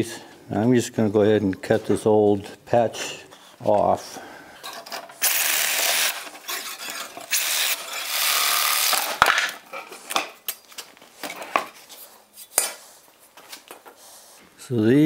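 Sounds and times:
reciprocating saw cutting bolts: 0:05.0 - 0:09.6.

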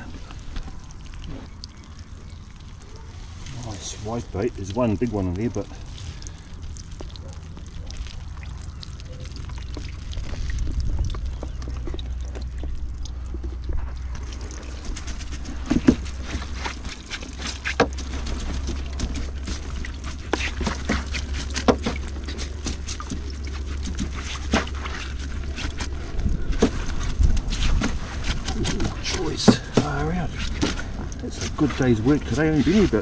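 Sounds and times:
hand rubbing wet mesh: 0:00.0 - 0:33.0
water trickling and dripping: 0:00.0 - 0:33.0
low wind rumble: 0:08.2 - 0:16.9, 0:25.2 - 0:29.5.

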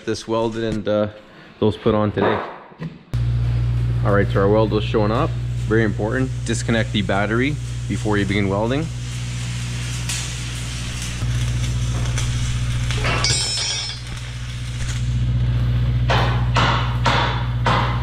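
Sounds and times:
welding arc crackling and hissing: 0:03.2 - 0:16.4
steady low hum: 0:03.2 - 0:18.0.

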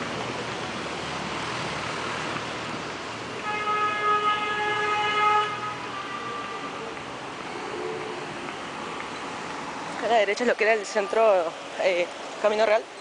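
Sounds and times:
street traffic: 0:00.0 - 0:13.0
vehicle horn blast: 0:03.4 - 0:06.8.

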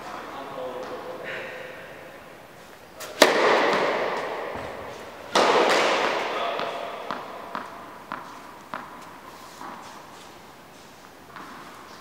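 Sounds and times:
racket striking ball with echo: 0:03.0 - 0:09.8
ball bouncing on court: 0:03.2 - 0:09.8, 0:11.3 - 0:11.7.

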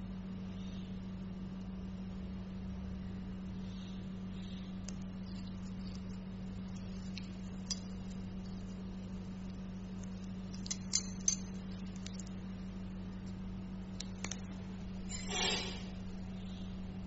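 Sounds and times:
steady low hum: 0:00.0 - 0:17.0
metallic clicks of surgical instruments: 0:10.5 - 0:12.3.

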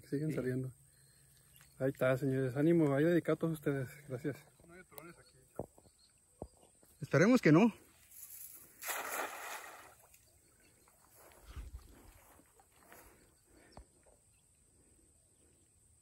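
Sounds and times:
river water splashing and sloshing: 0:08.2 - 0:11.1.

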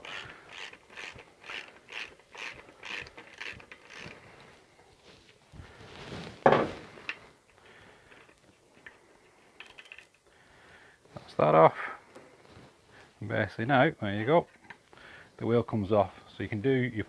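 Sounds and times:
ratchet clicking: 0:00.0 - 0:04.2.

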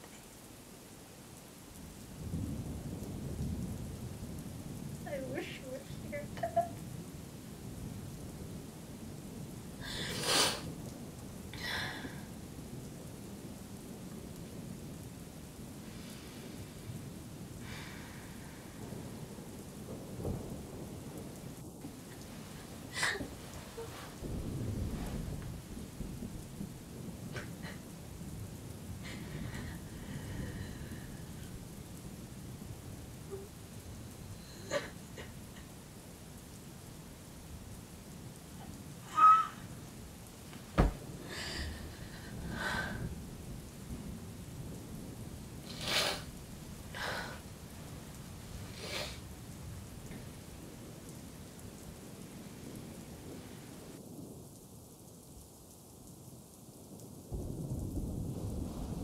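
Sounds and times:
steady rain: 0:00.0 - 0:59.0
low thunder rumbles: 0:01.6 - 0:59.0
sharp thunder crack: 0:17.6 - 0:33.4, 0:40.6 - 0:47.5, 0:57.3 - 0:59.0.

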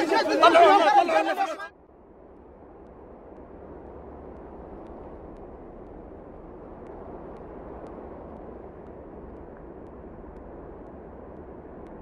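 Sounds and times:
low rushing noise: 0:00.0 - 0:12.0
faint ticks: 0:02.8 - 0:12.0.

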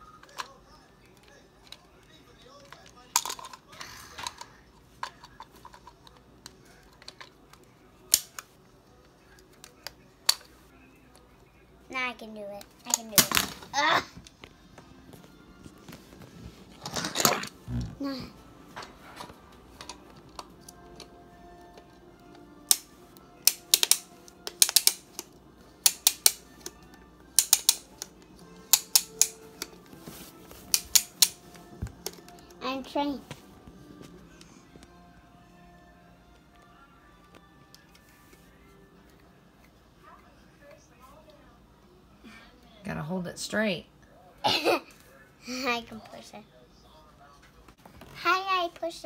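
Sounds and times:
plastic toy clicks and taps: 0:23.5 - 0:26.8, 0:27.4 - 0:28.1, 0:28.7 - 0:29.4.

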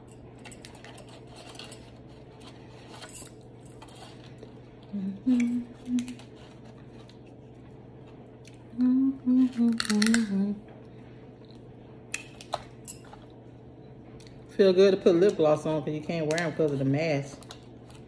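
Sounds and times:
person humming: 0:04.9 - 0:06.2, 0:08.7 - 0:10.6
crab shells cracking: 0:09.7 - 0:10.3.

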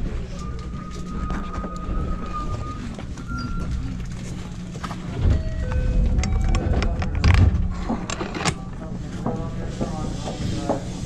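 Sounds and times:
train car rumble: 0:00.0 - 0:10.4.

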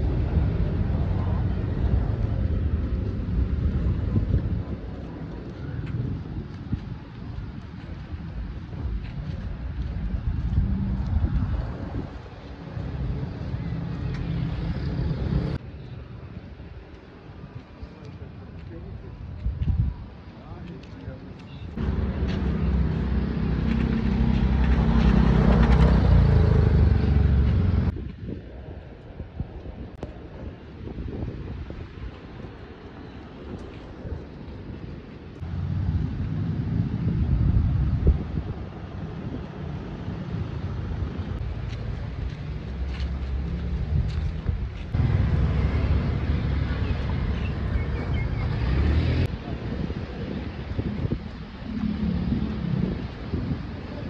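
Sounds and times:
road traffic: 0:00.0 - 0:54.0
wind on microphone: 0:00.0 - 0:54.0
vehicle engine droning: 0:21.8 - 0:28.0, 0:35.4 - 0:54.0.

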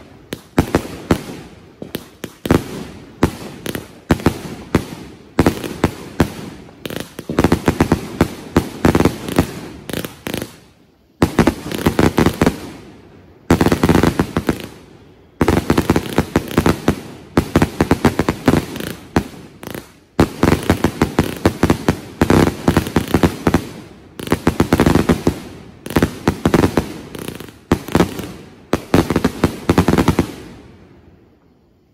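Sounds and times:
firework cakes banging and crackling: 0:00.0 - 0:12.8, 0:13.5 - 0:30.5.

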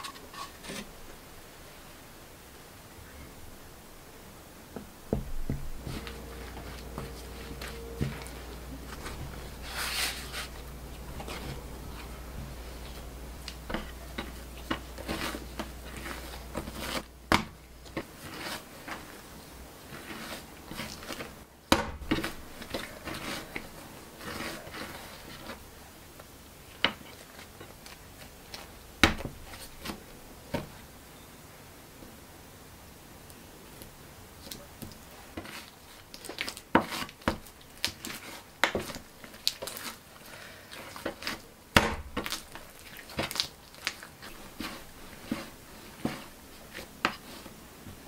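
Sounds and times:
dough kneaded on wooden board: 0:04.8 - 0:25.7, 0:34.5 - 0:48.0
dough squishing in glass bowl: 0:05.1 - 0:25.7, 0:34.5 - 0:48.0.

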